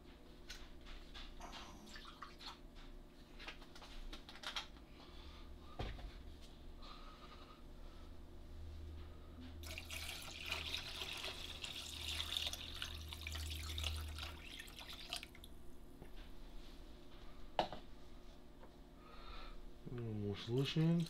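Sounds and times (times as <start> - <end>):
water splashing into tank: 9.6 - 15.5.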